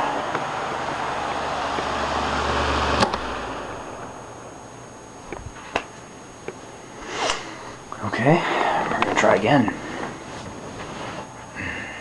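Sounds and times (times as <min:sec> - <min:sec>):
electric fan running: 0:00.0 - 0:12.0
fan switch click: 0:02.9 - 0:03.4.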